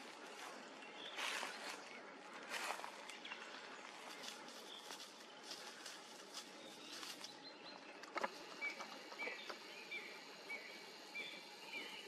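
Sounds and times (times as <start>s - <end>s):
faint forest ambience: 0.0s - 12.0s
bird chirping: 2.8s - 12.0s.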